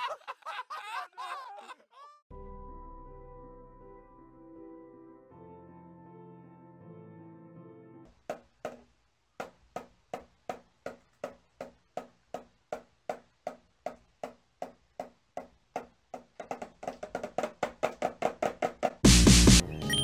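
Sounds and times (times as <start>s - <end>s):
toy drum tapped with stick: 8.3s - 19.0s.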